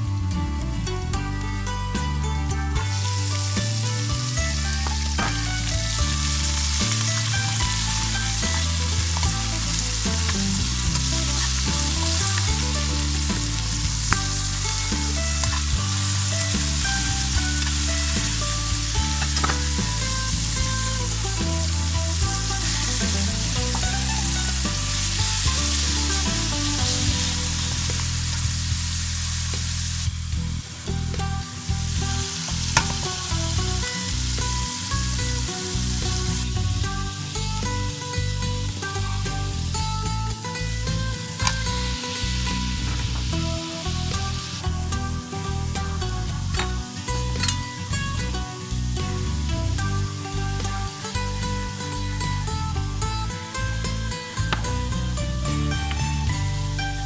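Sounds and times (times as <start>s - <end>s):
meat sizzling in oil: 3.0s - 37.6s, 41.4s - 44.7s.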